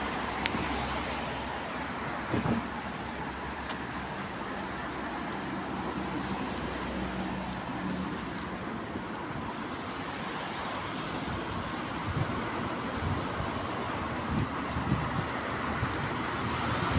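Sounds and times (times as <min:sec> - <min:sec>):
road traffic noise: 0:00.0 - 0:16.9
small clicks: 0:07.4 - 0:08.6, 0:14.2 - 0:16.2.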